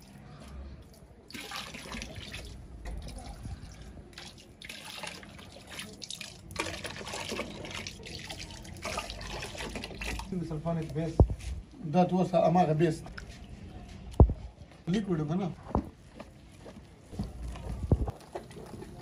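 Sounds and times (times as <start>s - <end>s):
water pouring into a tub: 1.3s - 10.4s.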